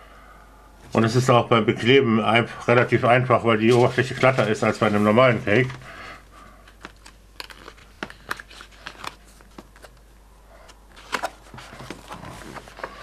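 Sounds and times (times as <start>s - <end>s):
glossy paper pages rustling: 3.2s - 13.0s.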